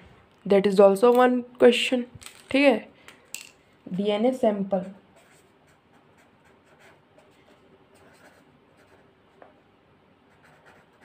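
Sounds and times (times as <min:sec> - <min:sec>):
pen scratching on paper: 0:05.2 - 0:09.1, 0:10.3 - 0:11.0.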